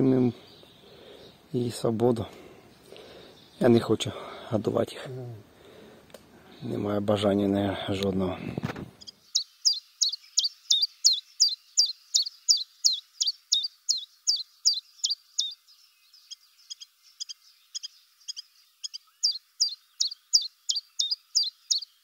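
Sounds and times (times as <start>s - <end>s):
small songbird calling: 0.0s - 1.8s, 2.6s - 4.2s, 9.0s - 22.0s.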